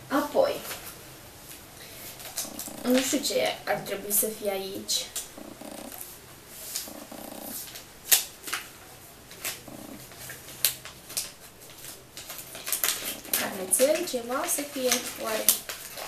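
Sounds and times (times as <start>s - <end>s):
wrapping paper rustling and tearing: 7.5s - 16.0s.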